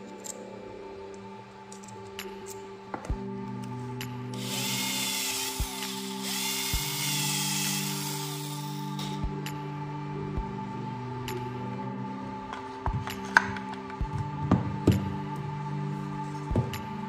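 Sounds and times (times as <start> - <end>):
cordless drill drilling plastic: 4.4 - 8.8.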